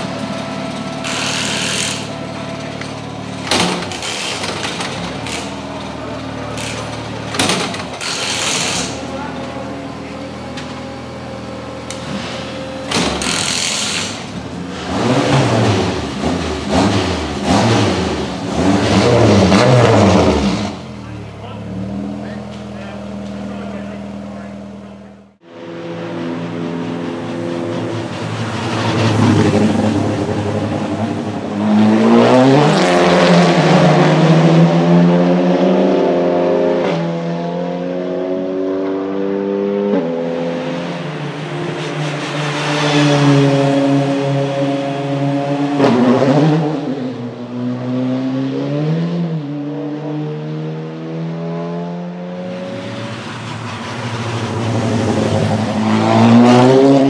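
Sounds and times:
race car engines accelerating past: 13.2s - 24.0s, 25.4s - 57.0s.

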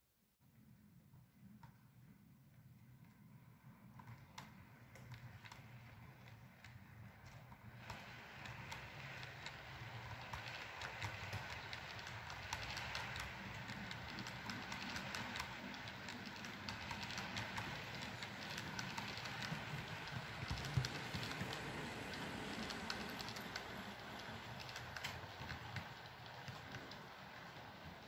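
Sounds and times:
model train wheels clicking: 3.9s - 28.0s.

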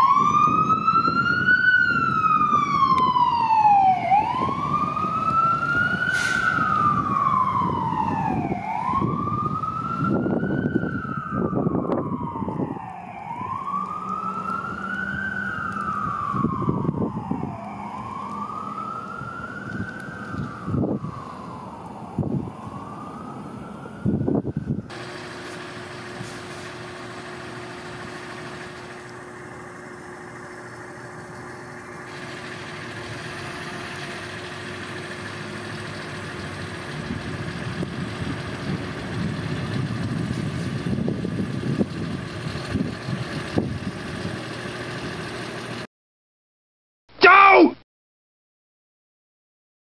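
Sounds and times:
fire engine siren wailing: 0.0s - 45.9s
diesel truck engine idling: 24.6s - 45.9s.

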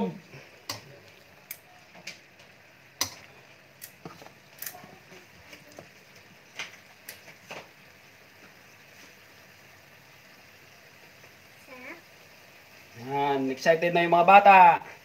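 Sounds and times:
chicken simmering in a wok: 0.0s - 15.0s
sharp pops and ticks: 0.6s - 5.0s, 5.6s - 9.2s.

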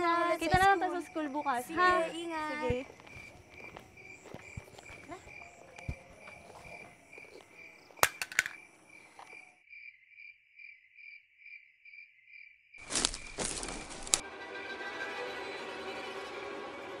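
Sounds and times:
crickets chirping: 0.0s - 14.2s
music: 1.9s - 7.1s, 13.8s - 17.0s.

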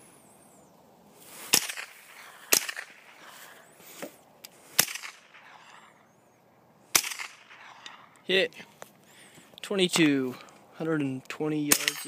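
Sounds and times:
rifle shots with echo: 1.5s - 3.1s, 4.8s - 5.6s, 6.9s - 8.0s, 11.7s - 12.0s.

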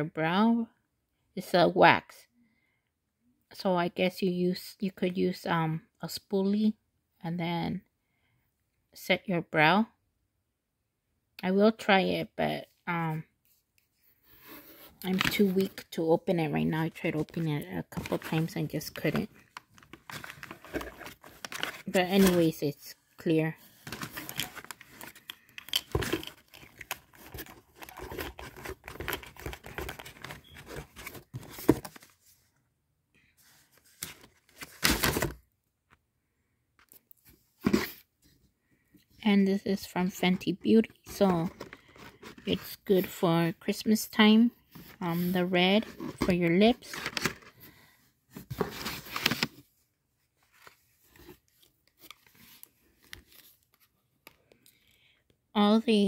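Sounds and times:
paper rustling crinkling and tearing: 17.0s - 22.6s, 23.7s - 32.3s.

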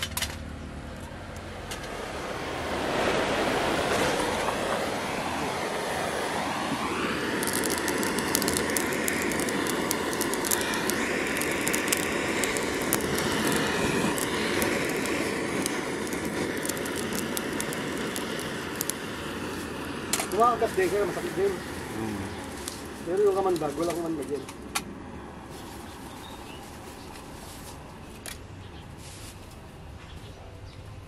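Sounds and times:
wood crackling and popping: 0.0s - 2.0s, 6.8s - 24.9s
blowtorch flame rushing: 1.1s - 28.0s.

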